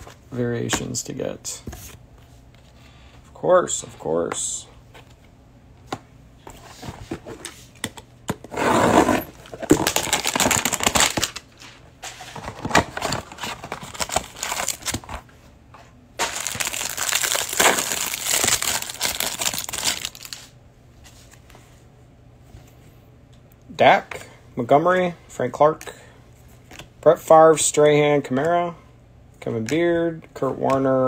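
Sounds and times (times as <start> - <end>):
cardboard and plastic wrap tearing: 8.9 - 11.4, 12.6 - 15.0, 16.2 - 20.4.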